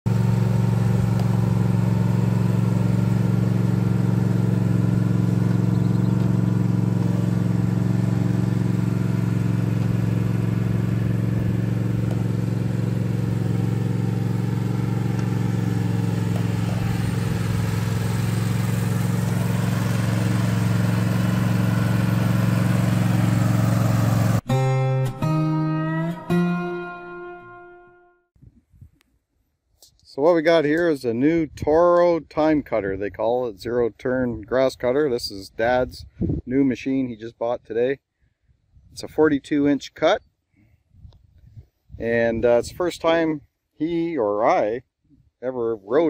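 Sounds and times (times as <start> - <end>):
lawn mower engine running: 0.1 - 25.4.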